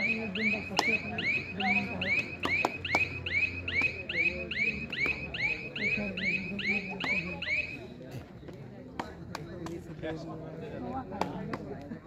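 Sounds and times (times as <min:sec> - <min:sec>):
high repeated chirp: 0:00.0 - 0:07.8
sharp slaps: 0:00.5 - 0:01.2, 0:01.8 - 0:05.6, 0:11.2 - 0:11.9.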